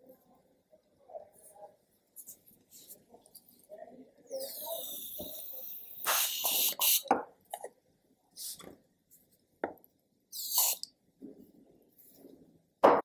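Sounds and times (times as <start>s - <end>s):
aerosol spray hissing: 4.9s - 7.1s, 10.4s - 10.9s.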